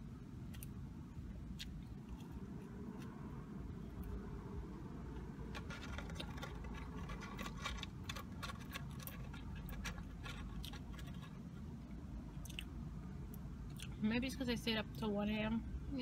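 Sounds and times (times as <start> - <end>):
person chewing food: 0.4 - 4.3, 12.4 - 12.7, 13.3 - 14.0.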